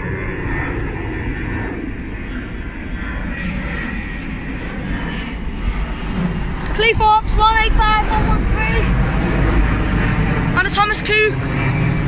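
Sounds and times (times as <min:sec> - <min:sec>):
jet airliner engine roar: 0:00.0 - 0:12.0
diesel train approaching: 0:06.0 - 0:12.0.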